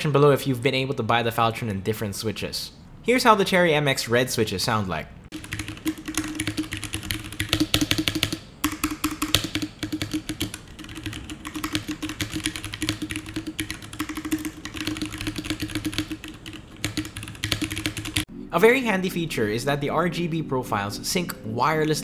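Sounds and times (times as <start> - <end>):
mechanical keyboard typing: 5.3 - 18.3.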